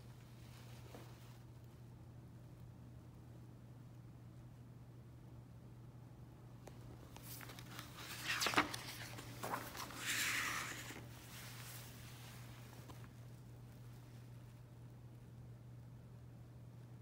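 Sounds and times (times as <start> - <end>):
faint low hum: 0.0 - 17.0
book page rustling: 6.7 - 13.2.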